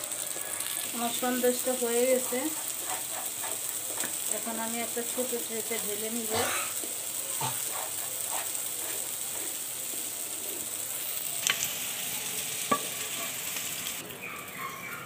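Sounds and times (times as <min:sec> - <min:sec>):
steady sizzle: 0:00.0 - 0:15.0
spatula scraping a pan: 0:01.9 - 0:04.3, 0:06.2 - 0:10.7.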